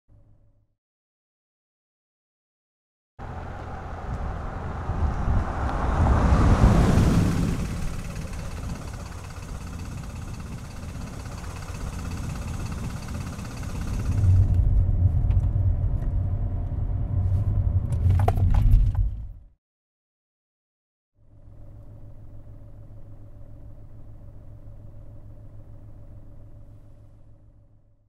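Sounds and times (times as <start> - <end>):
car passing at speed: 3.2 - 10.2
engine and road rumble in car: 3.2 - 19.5, 21.2 - 28.0.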